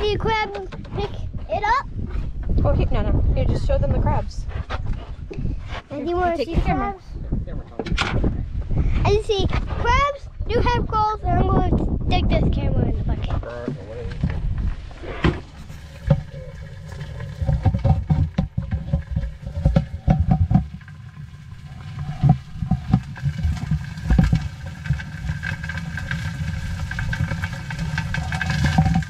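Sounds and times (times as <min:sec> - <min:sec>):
low handling rumble: 0:11.2 - 0:29.0
clicks and scraping on plastic: 0:13.6 - 0:29.0.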